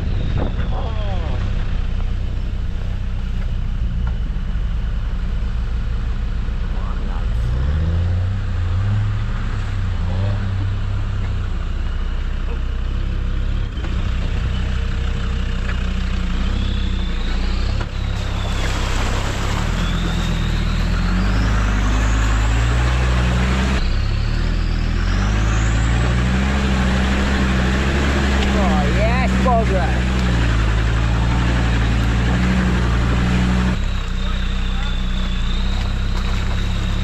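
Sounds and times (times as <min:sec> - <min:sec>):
diesel engine revving: 0:00.0 - 0:37.0
tyres splashing through water: 0:17.1 - 0:37.0.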